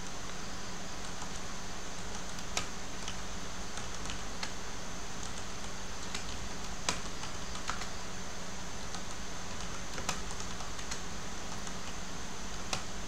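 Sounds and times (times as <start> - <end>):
keyboard keys clicking: 8.9 - 12.0.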